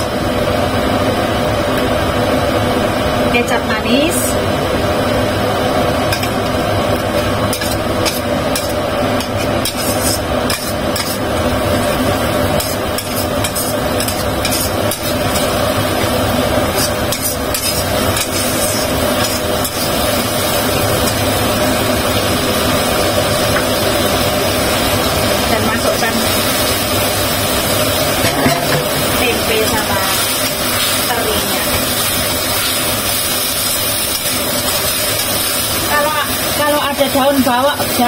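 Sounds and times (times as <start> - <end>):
metal spatula scraping a wok: 7.2 - 11.4, 12.5 - 15.6, 16.6 - 20.2
paste frying hiss: 7.2 - 38.0.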